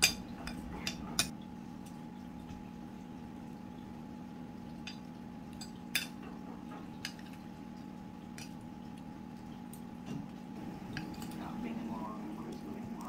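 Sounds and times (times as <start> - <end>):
utensil clinking against cookware: 0.0 - 1.3
steady low hum: 0.0 - 13.0.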